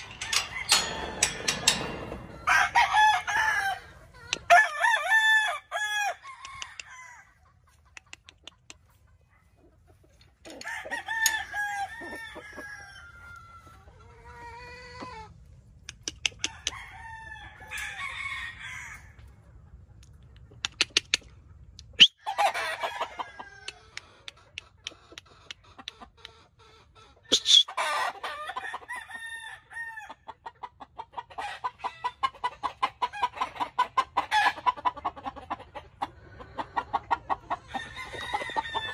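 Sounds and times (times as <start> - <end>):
roosters crowing: 0.0 - 7.4, 10.5 - 15.3, 16.4 - 19.3, 22.2 - 24.0, 27.6 - 30.3, 36.5 - 38.9.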